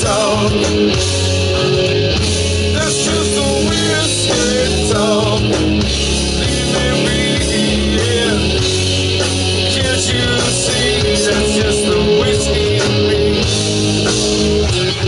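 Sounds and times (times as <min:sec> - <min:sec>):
person singing: 0:00.0 - 0:00.8, 0:02.7 - 0:08.9, 0:09.5 - 0:13.6
bass guitar: 0:00.0 - 0:15.0
drums: 0:00.0 - 0:15.0
electric guitar: 0:00.0 - 0:15.0.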